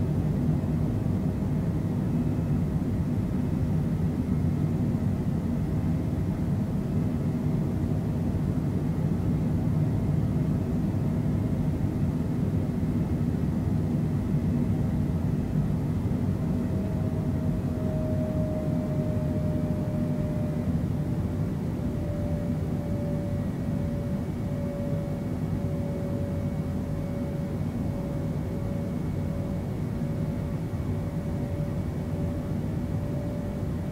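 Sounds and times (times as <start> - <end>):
jet engines rumbling in cabin: 0.0 - 33.9
faint falling whine: 21.9 - 33.9.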